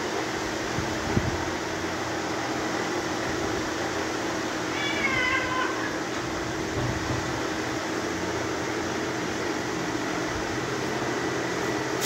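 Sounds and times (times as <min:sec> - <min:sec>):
cat yowling: 0:04.7 - 0:06.1.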